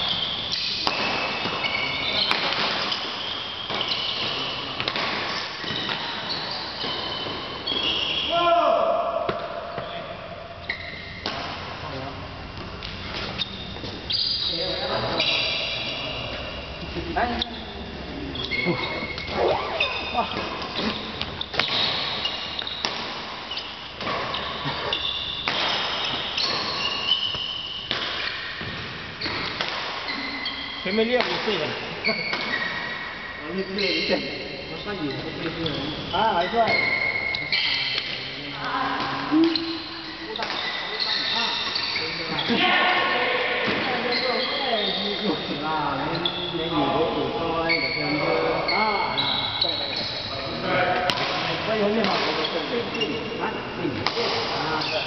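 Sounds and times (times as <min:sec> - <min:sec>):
shoes squeaking on court floor: 0:00.0 - 0:08.4, 0:09.2 - 0:55.0
racket striking shuttlecock: 0:00.5 - 0:07.8, 0:20.3 - 0:30.1.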